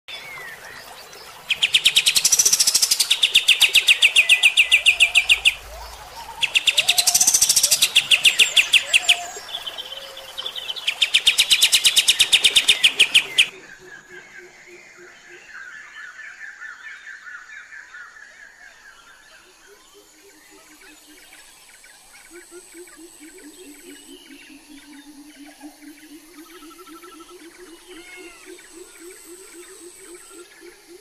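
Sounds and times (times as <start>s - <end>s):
songbird rapid high call: 0.2s - 13.5s.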